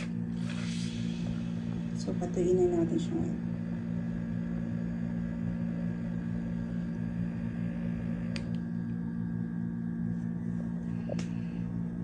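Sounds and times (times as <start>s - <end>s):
small motor humming: 0.0s - 9.6s.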